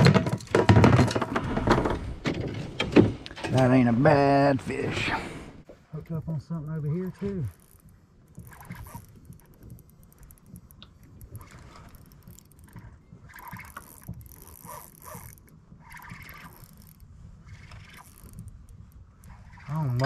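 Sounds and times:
gear knocking and scraping: 6.1s - 20.0s
fishing reel clicking: 6.6s - 20.0s.

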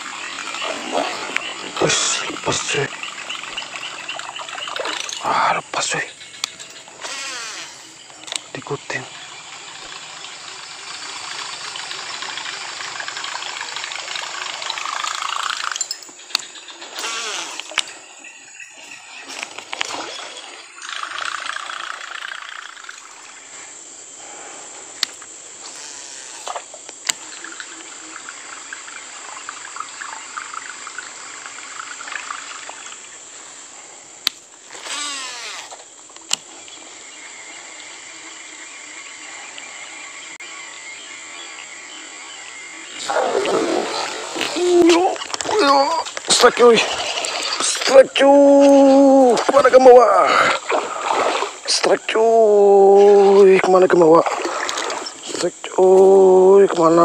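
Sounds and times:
high insect drone: 0.0s - 57.0s
fishing reel winding whirr: 6.9s - 8.5s, 9.4s - 15.8s, 34.7s - 36.4s
spinning spool: 9.1s - 16.0s, 20.8s - 23.1s, 34.7s - 36.4s.

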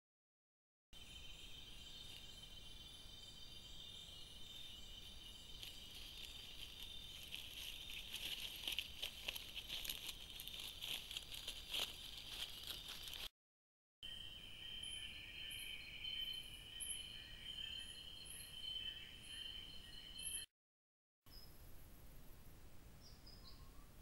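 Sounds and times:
insects chirping: 1.0s - 13.3s, 14.0s - 20.5s
rustling in dry leaves: 3.8s - 13.3s.

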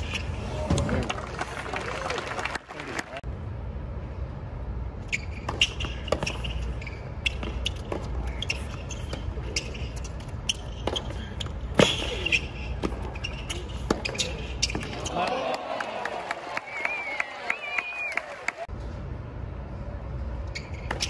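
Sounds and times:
low steady rumble: 3.2s - 5.4s
tennis ball bouncing on court: 5.4s - 15.1s.

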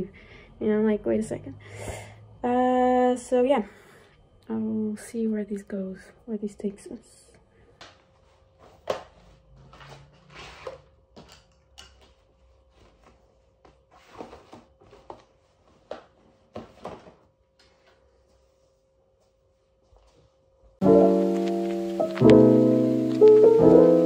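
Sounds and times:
faint steady hum: 0.0s - 9.3s.

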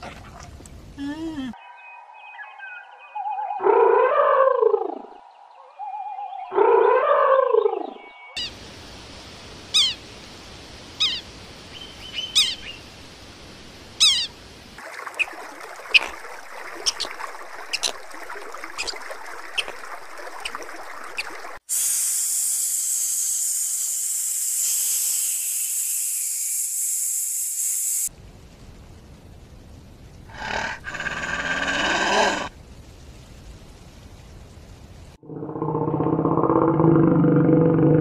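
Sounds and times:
loud steady high hiss: 8.4s - 14.8s, 21.6s - 35.2s.

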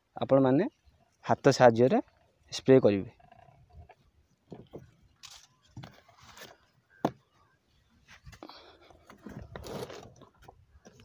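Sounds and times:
plastic scrapes and crunches: 9.0s - 11.0s.

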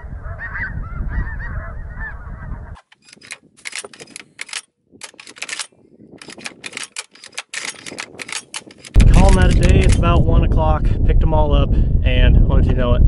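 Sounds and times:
wind on microphone: 0.0s - 13.0s
geese honking in flight: 0.2s - 2.8s
shotgun action clicking: 2.8s - 10.1s.

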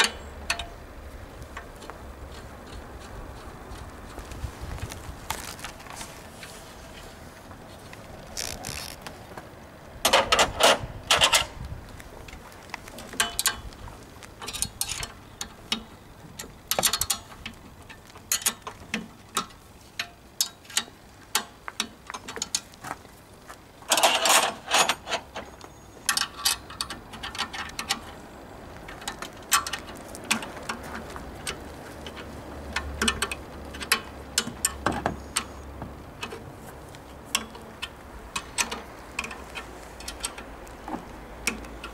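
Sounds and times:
metallic clicks and clanks of wrench: 0.0s - 0.7s, 14.4s - 22.7s, 23.9s - 25.4s, 31.5s - 35.5s, 37.3s - 40.5s.

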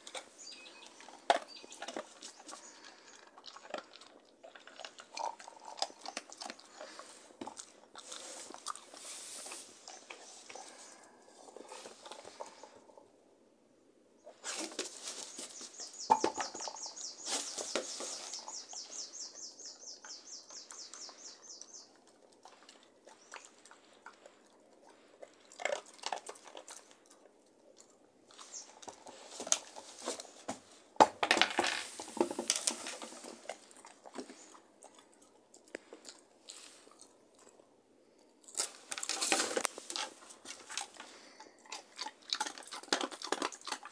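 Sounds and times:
dog crunching treats: 0.0s - 12.9s, 20.5s - 30.5s, 31.2s - 43.9s
dog gnawing rubber toy: 32.0s - 37.6s, 38.4s - 43.9s.

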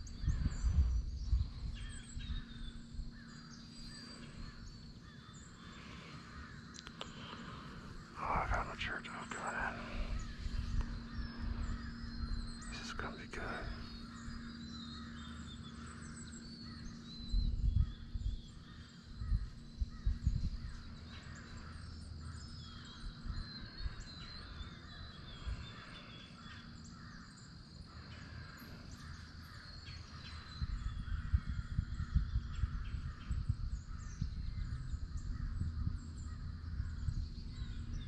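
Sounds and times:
low rumble on microphone: 0.0s - 38.0s
woodland ambience: 0.0s - 38.0s
crows cawing: 4.5s - 7.8s.

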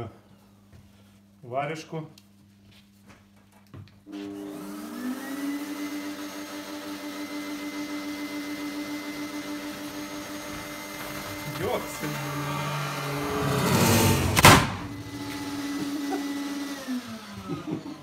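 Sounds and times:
dust extractor motor whine: 4.1s - 18.0s.

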